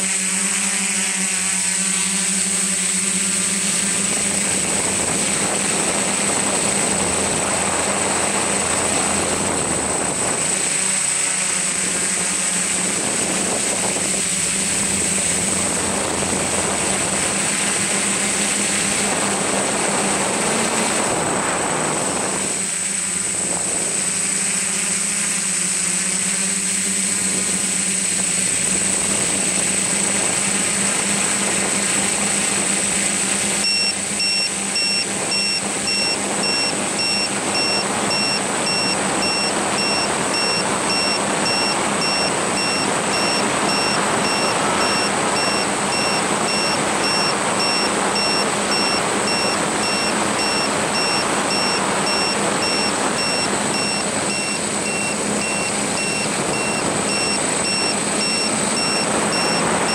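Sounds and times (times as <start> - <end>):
electric motors and propellers: 0.0 - 59.9
electronic beeps: 33.6 - 59.9.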